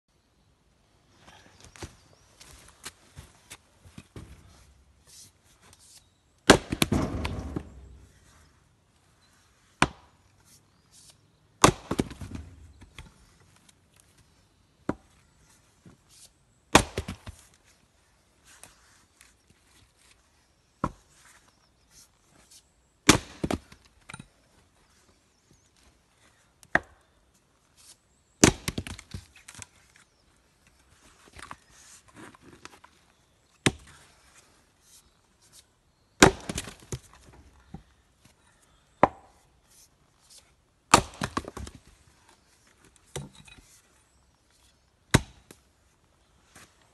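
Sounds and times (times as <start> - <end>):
axe splitting logs: 6.4 - 8.2, 9.8 - 10.1, 11.6 - 13.1, 16.7 - 17.4, 23.0 - 24.2, 28.4 - 29.6, 33.6 - 33.9, 36.2 - 37.8, 39.0 - 39.4, 40.9 - 41.8, 45.1 - 45.6.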